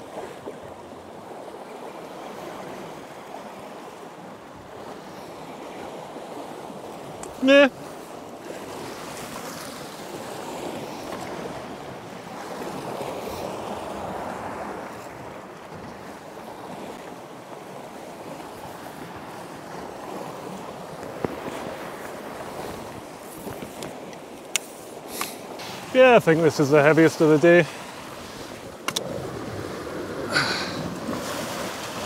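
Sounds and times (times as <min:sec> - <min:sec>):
waves washing against rocks: 0:16.0 - 0:32.0
sharp click: 0:28.8 - 0:29.0.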